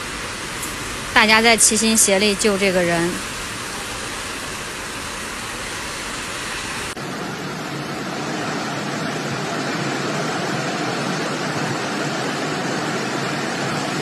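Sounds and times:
floodwater rushing: 0.0 - 14.0
heavy rain: 0.0 - 14.0.

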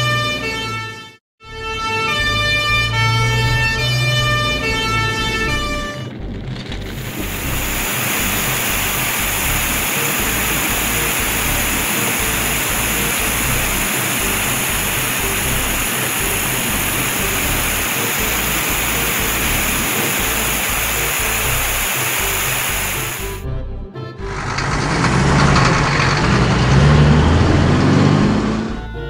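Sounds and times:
background music with low beat: 1.4 - 24.6, 28.6 - 29.0
water spraying from hose: 6.9 - 23.4, 24.6 - 28.2.

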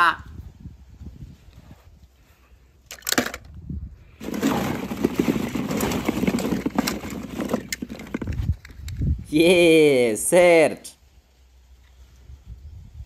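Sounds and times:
hand rummaging through balls: 4.2 - 8.7
plastic balls clacking: 4.2 - 8.9.

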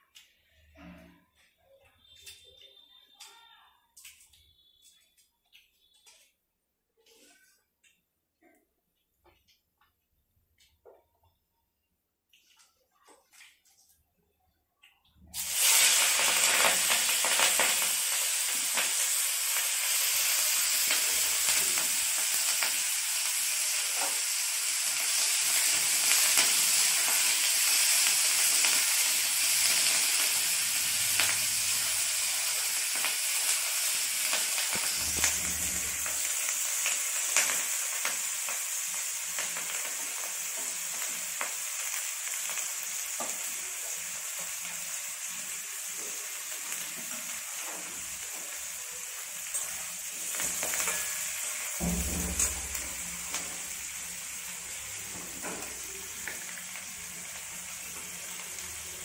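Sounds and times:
vegetables sizzling in hot oil: 15.4 - 59.0.

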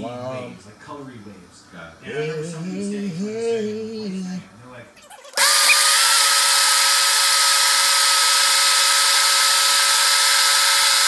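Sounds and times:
blender motor running: 5.3 - 11.0.

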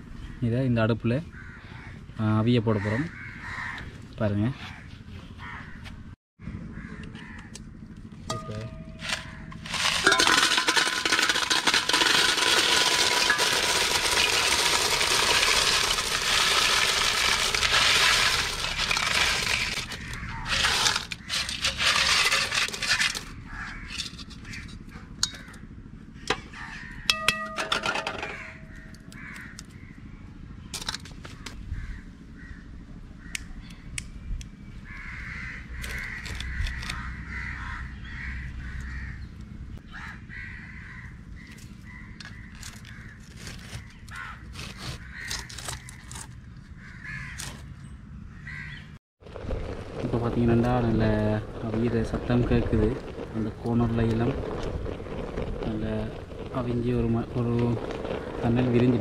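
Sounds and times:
crows cawing: 1.3 - 2.1, 2.7 - 5.9, 6.6 - 7.8, 9.0 - 10.0, 11.1 - 30.1, 31.2 - 33.5, 34.8 - 47.7, 48.3 - 49.0
clam shells rattling in a pot: 9.0 - 24.4.

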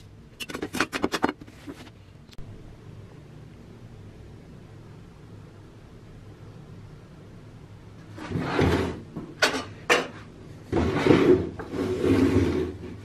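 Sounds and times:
objects scraping on wooden table: 8.1 - 13.0
plastic tub pushed across wood: 8.2 - 9.0, 10.7 - 13.0.

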